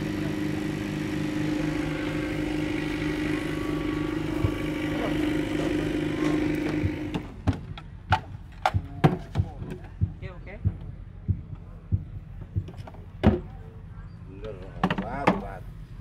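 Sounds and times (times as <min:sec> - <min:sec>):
engine running with pulsing throb: 0:00.0 - 0:08.1.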